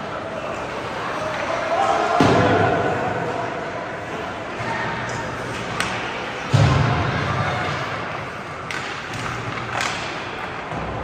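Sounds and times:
hockey hit against boards: 2.1 - 2.9, 4.6 - 11.0.

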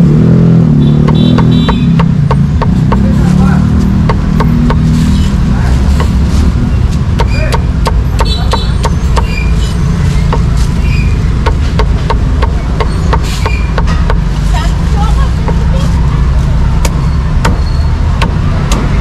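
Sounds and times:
cleaver chopping on wooden block: 1.0 - 3.2, 3.9 - 4.9, 6.0 - 6.2, 7.1 - 9.4, 10.3 - 10.5, 11.4 - 14.3, 18.2 - 18.9.

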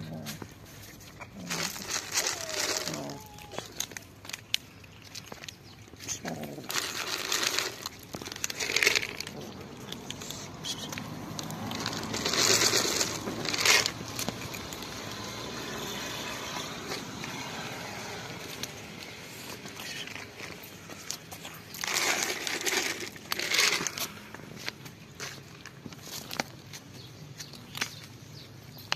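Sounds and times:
rustling noise: 0.0 - 4.3, 5.3 - 15.4
kittens crunching kibble: 0.0 - 28.9.

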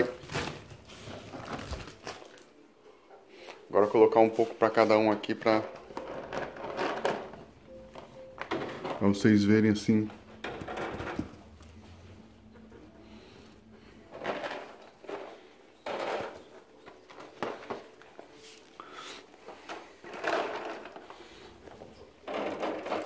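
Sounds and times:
pellets clattering on wire mesh: 4.6 - 7.6, 13.1 - 23.0.

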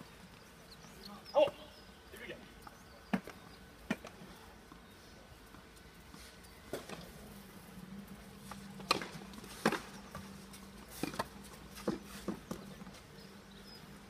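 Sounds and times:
tennis balls struck and bouncing: 3.0 - 4.9, 6.6 - 7.3, 8.4 - 13.3.

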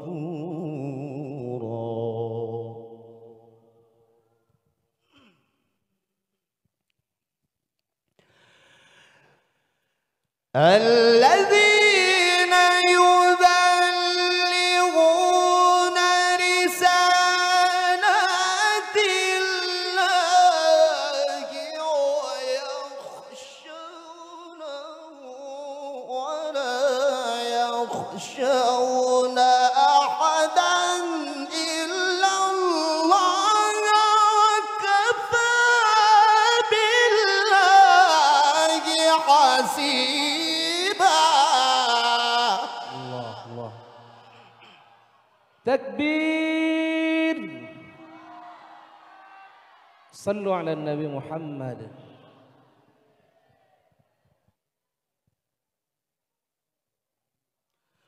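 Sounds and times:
man reciting melodically: 0.0 - 3.5, 10.5 - 44.8, 45.6 - 48.3, 50.2 - 52.4.

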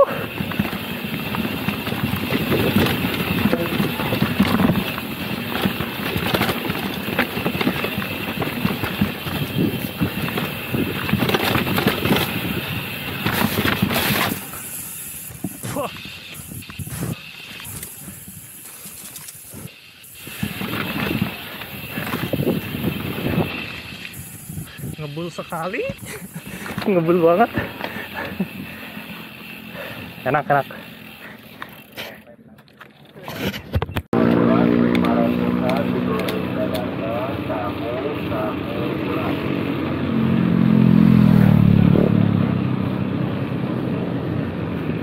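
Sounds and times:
bike rattling: 0.0 - 45.0
tyres crunching over gravel: 0.3 - 32.0.

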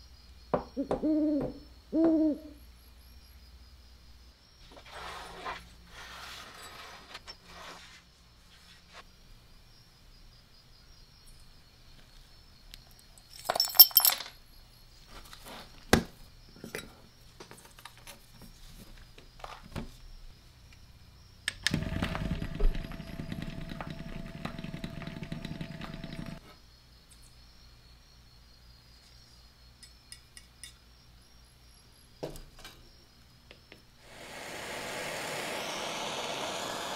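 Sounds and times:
screws clinking into metal drum: 13.4 - 14.3
motor hum: 21.6 - 26.4, 34.0 - 36.9.

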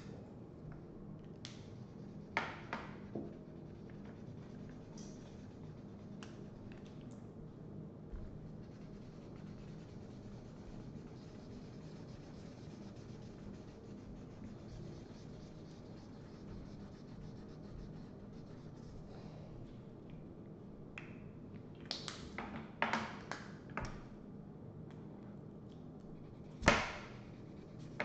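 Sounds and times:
markers scratching on paper: 8.4 - 19.1.

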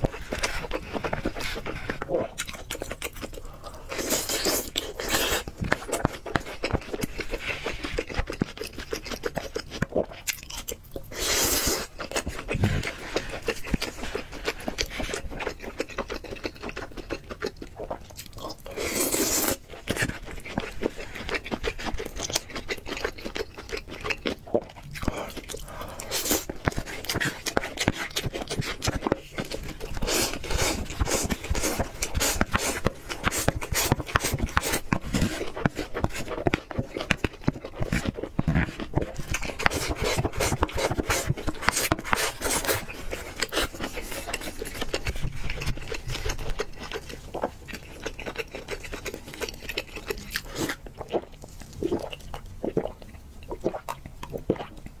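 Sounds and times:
chewing: 0.0 - 55.0.

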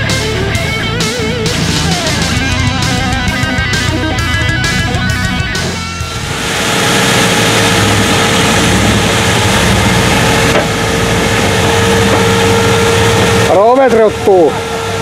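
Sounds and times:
steady whine: 0.0 - 15.0
vehicle engine running: 0.0 - 15.0.

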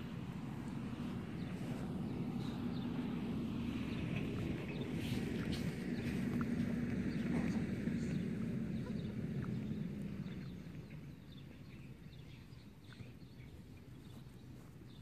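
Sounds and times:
low rumble: 0.0 - 13.9.

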